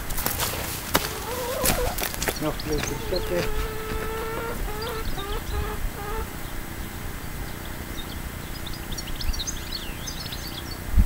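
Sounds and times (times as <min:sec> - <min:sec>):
insect buzzing: 0:01.0 - 0:06.5
high bird chirps: 0:01.1 - 0:07.7.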